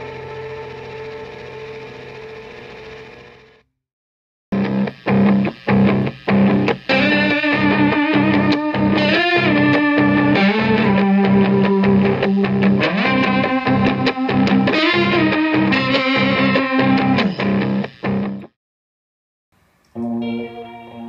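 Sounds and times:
distorted electric guitar: 4.5s - 18.6s, 19.9s - 21.0s.

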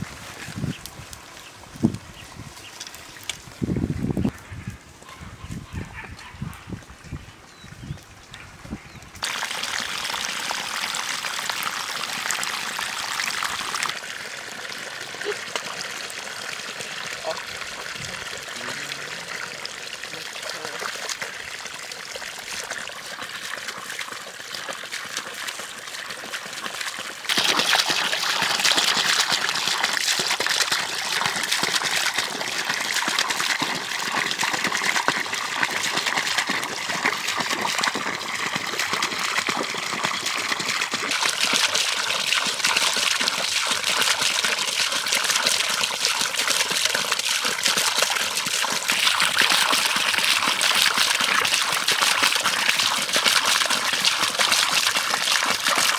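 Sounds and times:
water splashing on water wheel: 22.4s - 55.9s.

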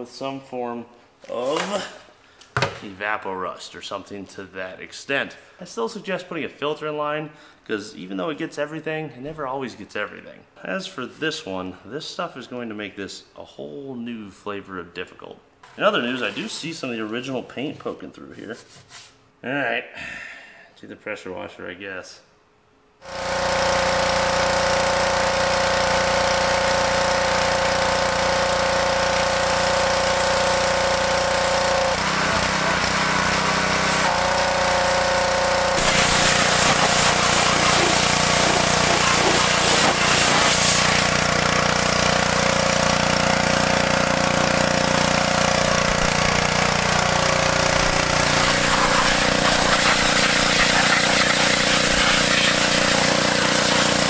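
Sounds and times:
pressure washer droning: 23.0s - 54.0s
hissing water jet: 29.6s - 43.8s, 47.2s - 54.0s.

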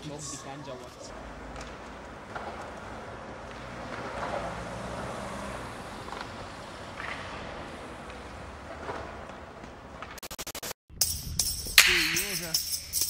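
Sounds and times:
street hum: 0.0s - 13.0s
passing vehicle: 1.1s - 10.1s.

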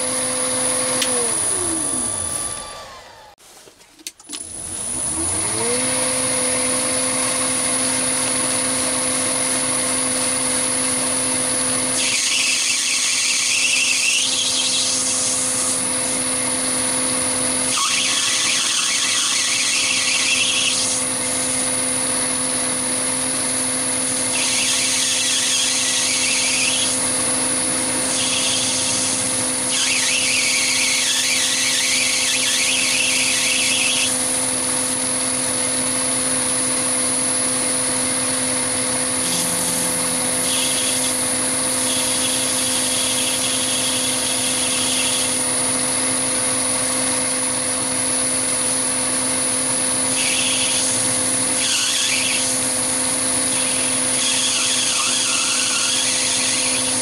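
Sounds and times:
lathe motor hum: 0.0s - 3.4s, 4.5s - 57.0s
tool cutting brass bar: 10.4s - 34.4s, 38.1s - 45.6s, 48.2s - 57.0s
high electronic whine: 37.3s - 45.4s.

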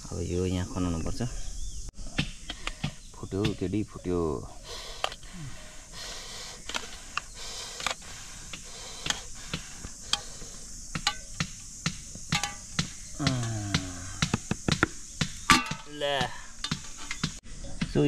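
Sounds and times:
steady high hiss: 0.0s - 18.0s
metal pots and utensils clinking: 12.3s - 12.6s, 15.5s - 15.9s.

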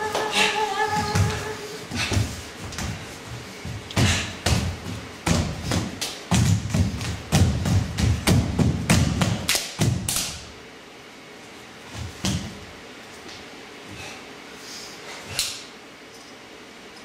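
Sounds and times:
bare feet stamping on stage: 0.0s - 10.2s, 11.9s - 12.6s.

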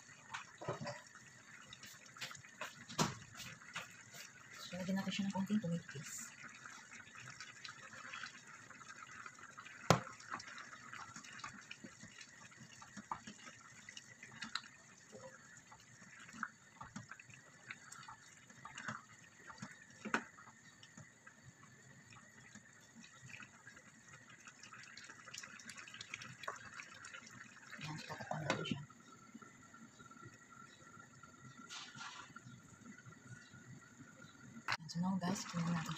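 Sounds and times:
sauce simmering and bubbling: 0.0s - 35.9s
wooden spoon stirring: 0.2s - 5.2s.

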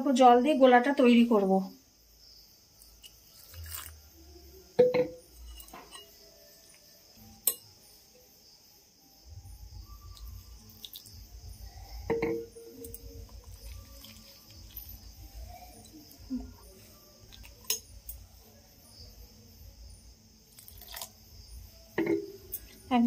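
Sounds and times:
utensil clinking against bowl: 4.8s - 6.8s, 7.4s - 7.7s, 12.1s - 15.1s, 17.3s - 18.2s.

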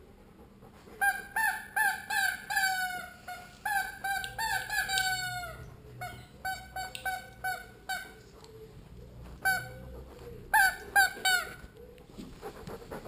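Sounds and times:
squeaky rubber dog toy: 1.0s - 8.2s, 9.4s - 9.9s, 10.5s - 11.7s.

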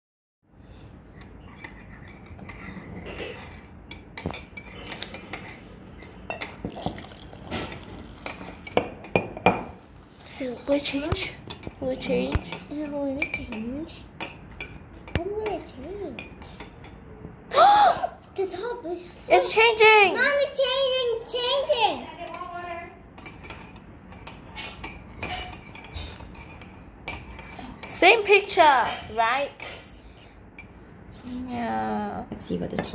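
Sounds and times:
tableware clicking and clinking: 1.2s - 9.8s, 23.2s - 30.0s
ceramic mugs clinking on wood: 6.3s - 9.8s.

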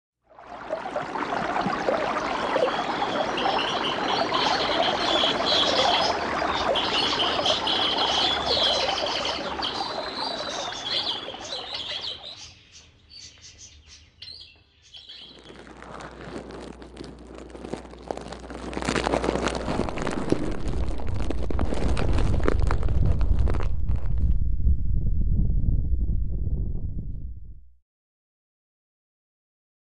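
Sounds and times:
stream water running: 0.3s - 13.1s, 14.9s - 24.0s
birds chirping: 1.9s - 15.8s
low rumble with crackles: 15.1s - 27.8s.

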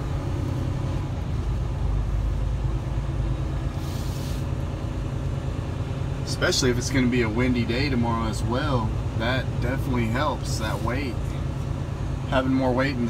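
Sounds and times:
truck diesel engine rumbling: 0.0s - 13.0s
brief hiss: 3.7s - 4.5s.

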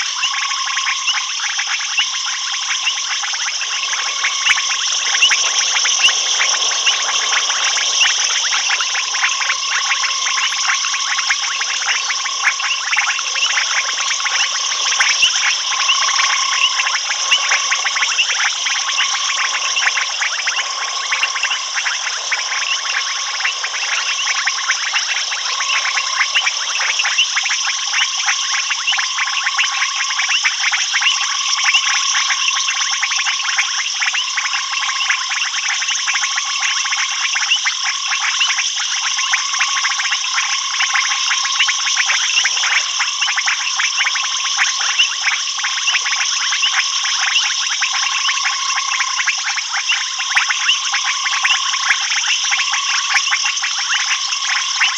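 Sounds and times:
frogs clicking calls: 0.0s - 54.9s
high insect buzz: 2.7s - 28.1s.

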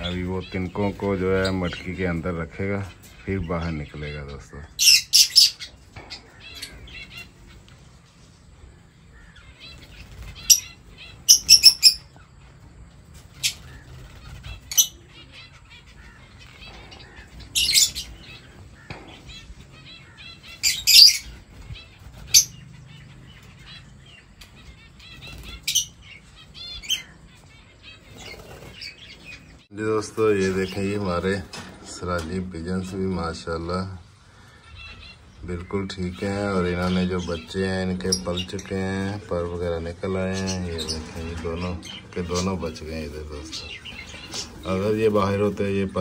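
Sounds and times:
lovebirds chirping: 0.0s - 46.0s.

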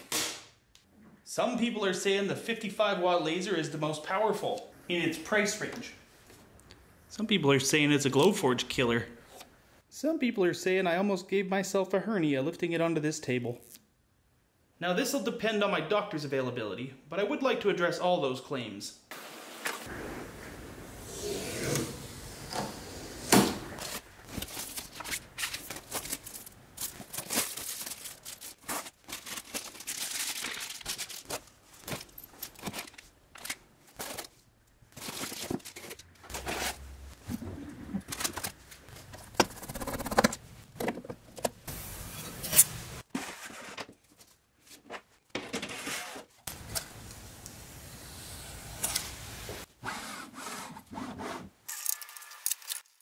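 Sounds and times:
foam rubbing and scraping: 36.3s - 38.1s, 49.8s - 51.5s.

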